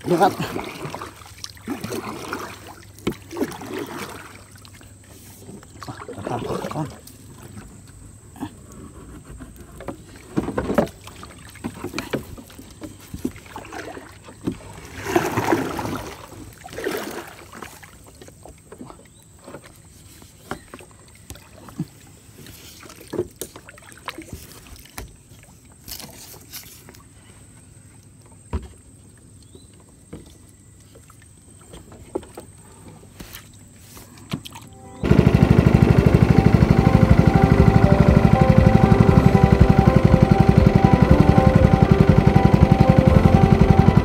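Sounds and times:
paddle swishing through water: 0.0s - 27.6s.

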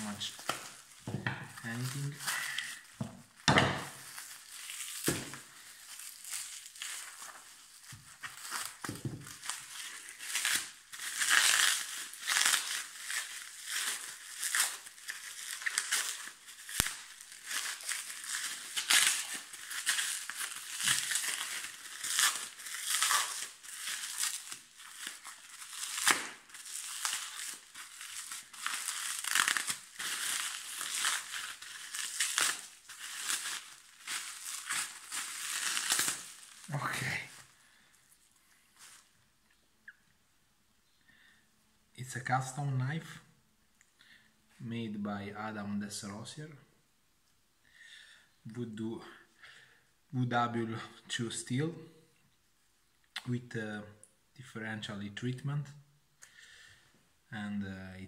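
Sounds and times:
plastic packaging crinkling: 0.0s - 39.2s.

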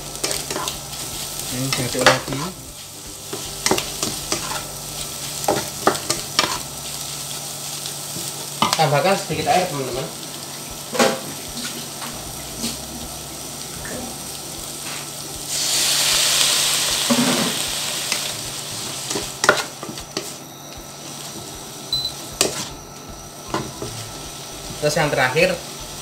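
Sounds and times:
spatula scraping wok: 0.0s - 10.1s, 13.6s - 21.6s
water hissing in hot wok: 0.0s - 19.6s
pan sizzling: 0.0s - 26.0s.

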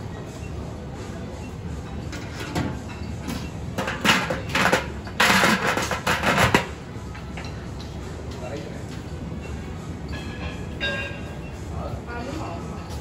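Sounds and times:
metal lid clanking and scraping: 2.1s - 6.8s.

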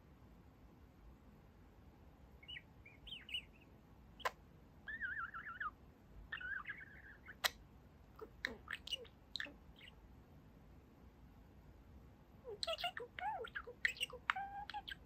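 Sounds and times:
budgerigar chirping and warbling: 2.4s - 7.6s, 8.2s - 10.0s, 12.5s - 15.0s.

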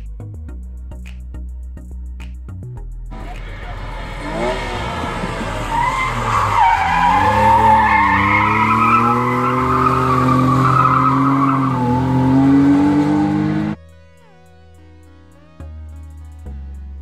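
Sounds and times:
car engine at high revs: 3.1s - 13.8s
tyre squeal: 3.6s - 13.4s.

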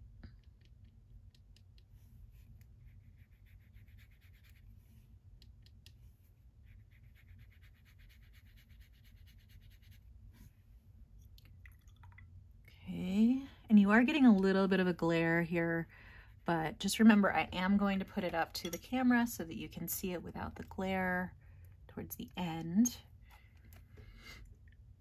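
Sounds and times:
brush stroking on paper: 2.0s - 5.1s, 6.1s - 10.6s.

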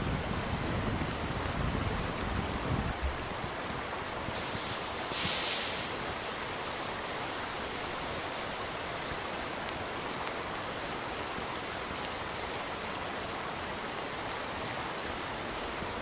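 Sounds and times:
steak sizzling on a grill: 4.3s - 16.0s.

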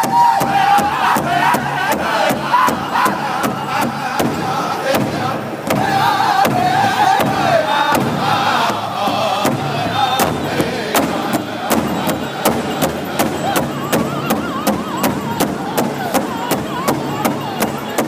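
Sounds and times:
group singing: 0.0s - 18.0s
large hide drum beat: 0.0s - 18.0s.

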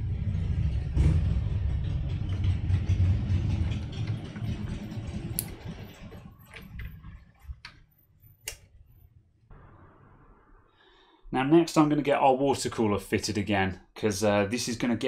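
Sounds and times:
sharp clicks: 8.4s - 8.7s.

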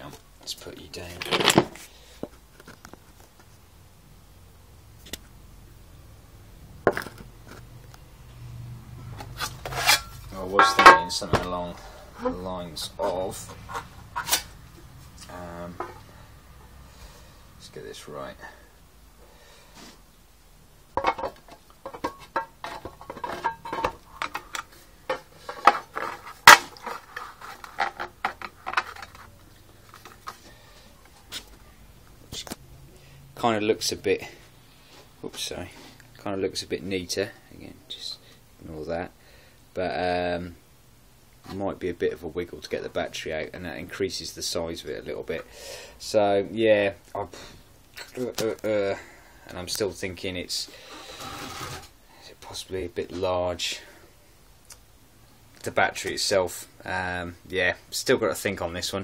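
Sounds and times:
metal and plastic knocks and scrapes: 21.0s - 30.4s.

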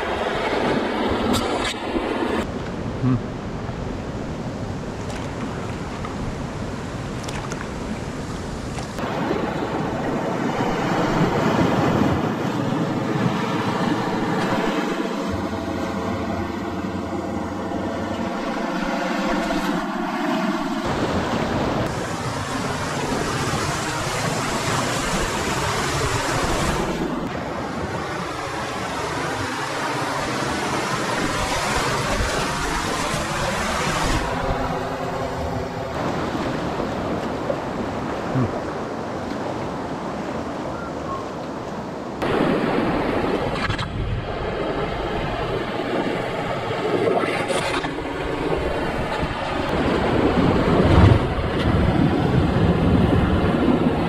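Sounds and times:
wind on microphone: 42.2s - 54.0s.

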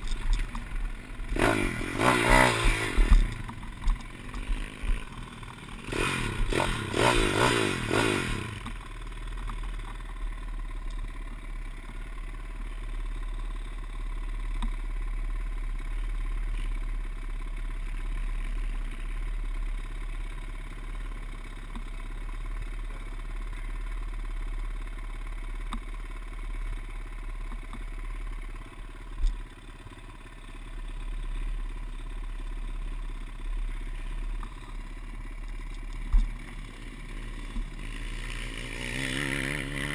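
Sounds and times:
pit bike engine revving: 0.0s - 9.5s, 33.9s - 39.9s.

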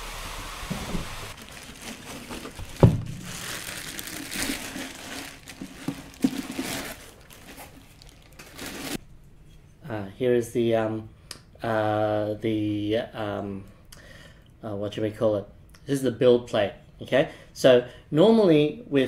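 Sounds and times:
plastic bag crinkling: 1.3s - 9.0s.

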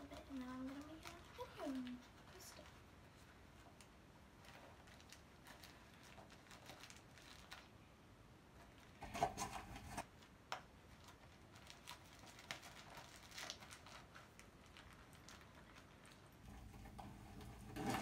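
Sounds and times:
small items rustling in a bag: 0.0s - 7.8s, 10.9s - 16.4s.

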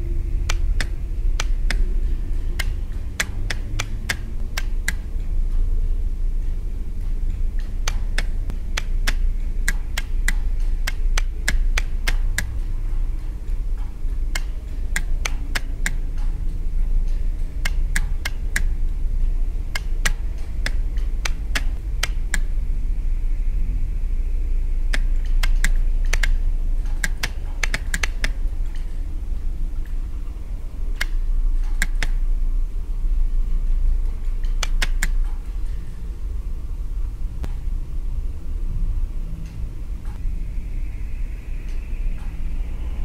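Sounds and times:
relays clicking: 0.0s - 22.6s, 24.8s - 32.3s, 34.0s - 35.9s
steady low hum: 0.0s - 43.0s.

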